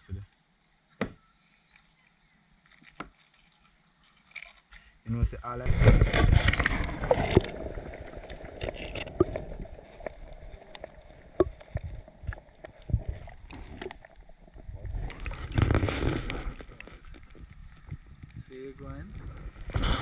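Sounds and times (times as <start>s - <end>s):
underwater low rumble: 5.5s - 20.0s
underwater clicks and knocks: 5.7s - 18.4s.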